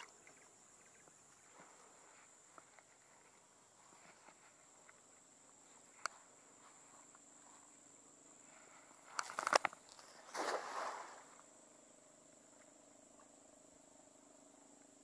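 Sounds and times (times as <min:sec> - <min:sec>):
faint high insect drone: 0:00.0 - 0:15.0
cast net rustling and rattling: 0:09.0 - 0:11.3.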